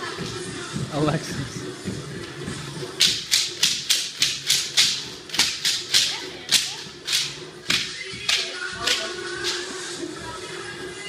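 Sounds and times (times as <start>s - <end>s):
wooden clapper clacking in rhythm: 3.0s - 9.8s.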